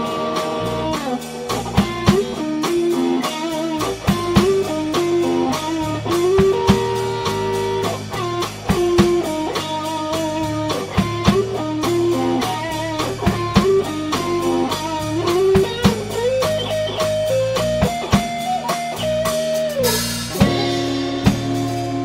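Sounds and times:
drum kit beat: 0.0s - 22.0s
electric bass: 0.0s - 22.0s
electric guitar lead melody: 0.0s - 22.0s
cymbal crash: 19.8s - 22.0s.

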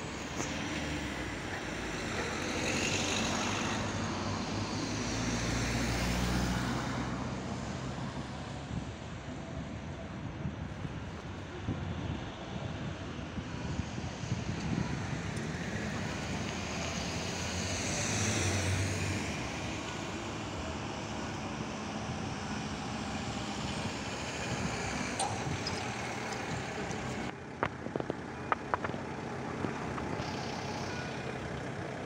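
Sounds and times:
vehicle passing close by: 0.0s - 8.4s, 14.7s - 27.3s
road traffic noise: 0.0s - 32.0s.

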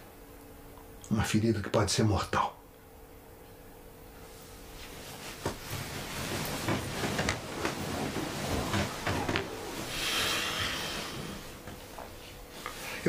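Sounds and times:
bedclothes rustling: 4.2s - 13.0s
sheet swishing: 4.3s - 13.0s.

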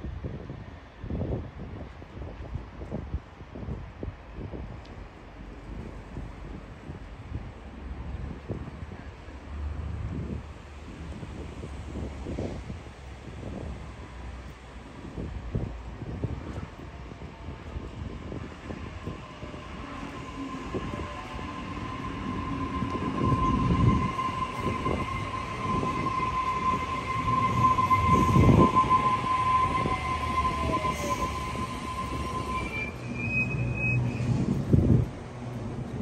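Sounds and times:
electric train high whine: 16.4s - 36.0s
falling whine: 18.3s - 34.6s
short high squeal: 20.1s - 34.6s.

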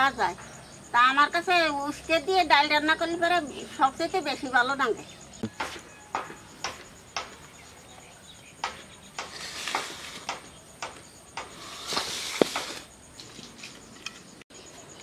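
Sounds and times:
gourd snapping and clicking: 8.6s - 14.2s
scratchy crackles: 9.2s - 10.5s.

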